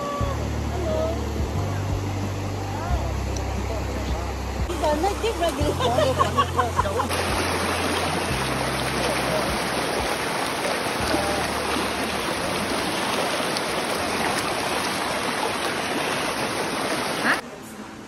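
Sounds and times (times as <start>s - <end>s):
river rapids rushing over stones: 7.0s - 17.4s.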